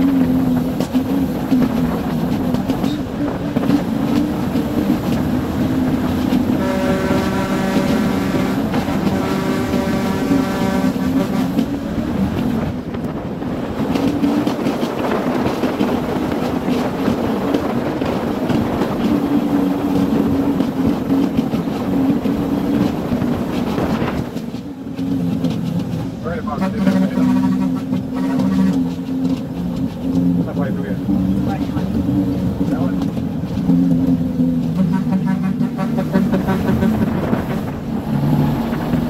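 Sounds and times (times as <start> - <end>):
wind and road noise: 0.0 - 39.0
truck horn: 6.4 - 11.6, 26.5 - 28.9, 34.7 - 37.2.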